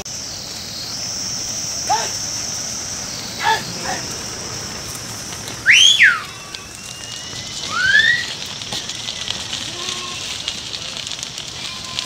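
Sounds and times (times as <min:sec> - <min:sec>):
hooves pattering on road: 0:02.2 - 0:12.0
shepherd whistling: 0:05.6 - 0:09.3.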